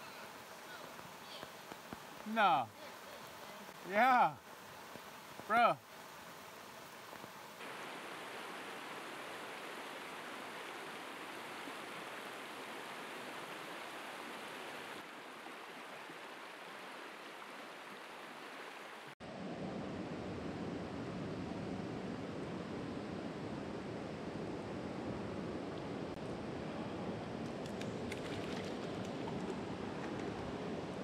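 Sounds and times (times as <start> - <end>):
creek rushing over stones: 0.0 - 19.2.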